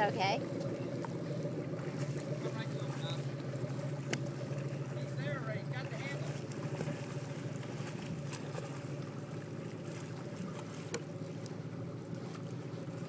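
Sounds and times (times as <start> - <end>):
motorboat engine idling: 0.0 - 13.0.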